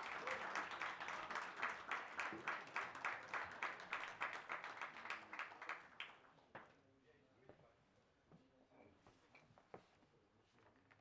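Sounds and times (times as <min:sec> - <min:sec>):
audience clapping in rhythm: 0:00.0 - 0:06.2.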